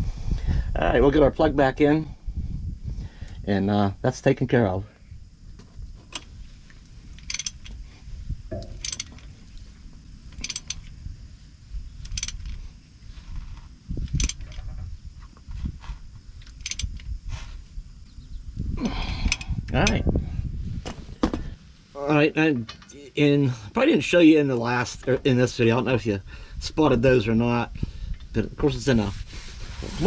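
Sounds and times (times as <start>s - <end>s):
ratchet wrench clicking: 7.2s - 7.8s, 8.5s - 9.3s, 10.4s - 10.9s, 12.0s - 12.6s, 14.0s - 14.6s, 16.4s - 17.1s, 19.2s - 20.0s.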